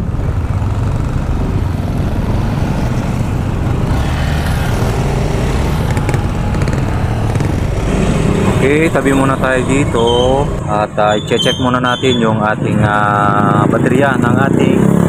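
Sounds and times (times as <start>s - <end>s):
scooter engine running: 0.0s - 8.8s
road and wind noise: 0.0s - 15.0s.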